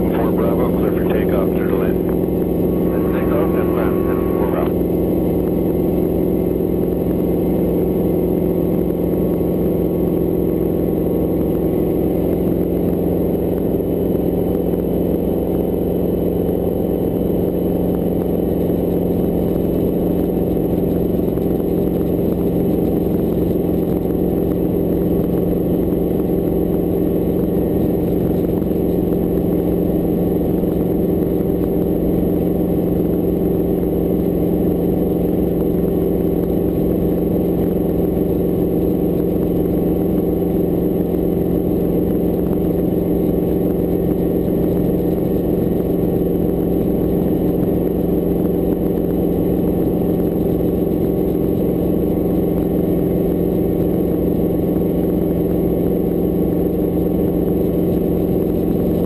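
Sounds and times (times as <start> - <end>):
helicopter engine hum: 0.0 - 7.8.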